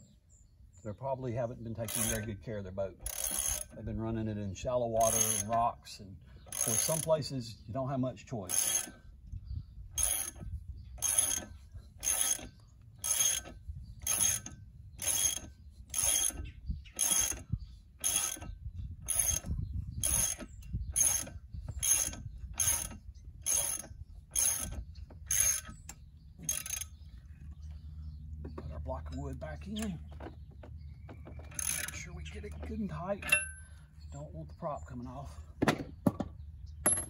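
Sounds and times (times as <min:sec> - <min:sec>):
ratchet pawl clicking: 0:01.8 - 0:02.3, 0:03.0 - 0:03.8, 0:05.0 - 0:05.6, 0:06.5 - 0:07.2, 0:08.5 - 0:09.0, 0:09.9 - 0:27.0, 0:31.4 - 0:33.4.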